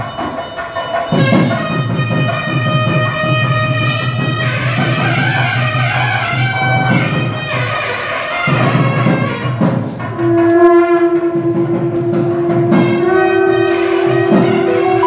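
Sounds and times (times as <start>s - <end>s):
instrumental music: 0.0s - 15.0s
long held note: 10.2s - 15.0s.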